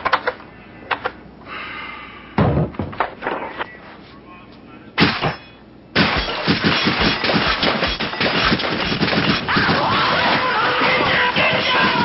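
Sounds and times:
nail gun firing rapidly: 6.0 - 12.0.

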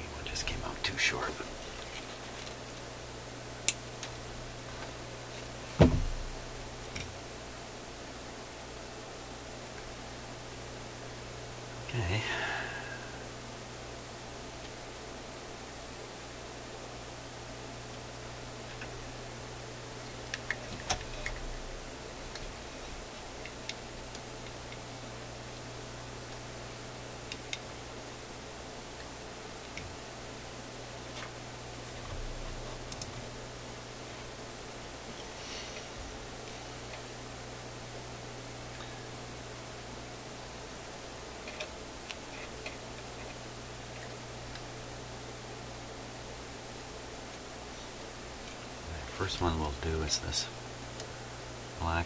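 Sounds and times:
low steady hum: 0.0 - 52.0
steady hiss: 0.0 - 52.0
small clicks and taps on circuit board: 3.6 - 4.2, 20.3 - 21.4, 27.3 - 27.7, 32.9 - 33.2
thump on workbench: 5.8 - 6.2.

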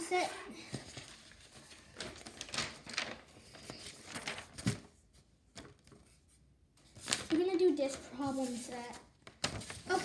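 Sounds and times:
paper rustling: 0.0 - 10.0.

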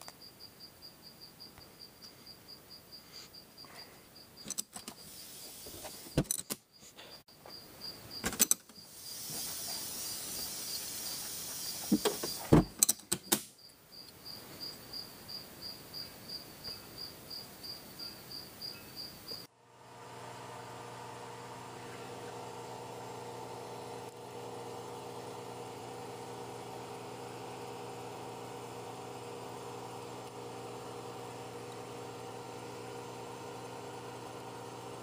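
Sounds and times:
blast cabinet hissing: 4.8 - 6.2, 8.8 - 12.8
clicks and knocks of handling metal: 12.0 - 13.5.

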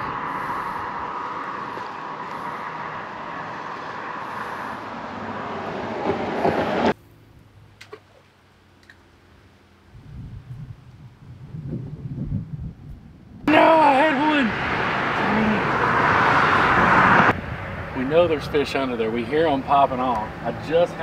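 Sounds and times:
road traffic rushing: 0.0 - 7.8, 13.3 - 21.0.

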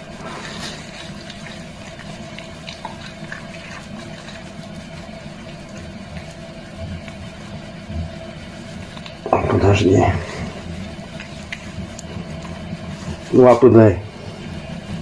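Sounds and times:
faint steady hum: 0.0 - 15.0
hands lathering wet fur: 0.0 - 15.0.

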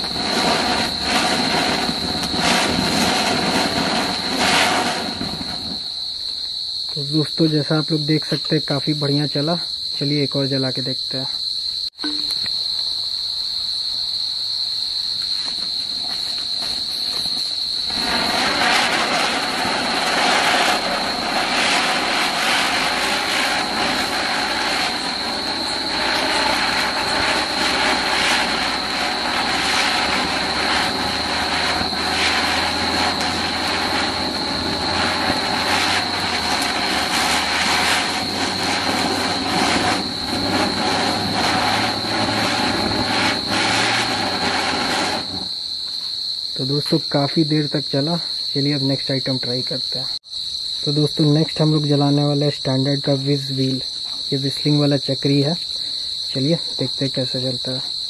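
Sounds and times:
firework crackles: 0.0 - 6.2, 15.9 - 45.8
spinning firework hissing: 0.0 - 6.2, 15.9 - 45.8
crickets chirping: 0.0 - 58.0.

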